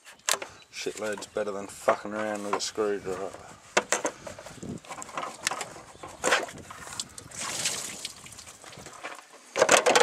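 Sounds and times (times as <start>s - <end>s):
coolant trickling and splashing: 6.6s - 9.2s.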